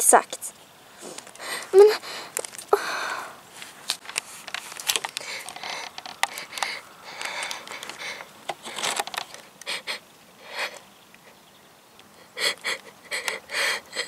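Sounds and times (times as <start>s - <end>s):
person sobbing and sniffling: 1.4s - 3.3s, 9.6s - 11.4s, 12.2s - 14.0s
small clicks: 3.9s - 9.7s.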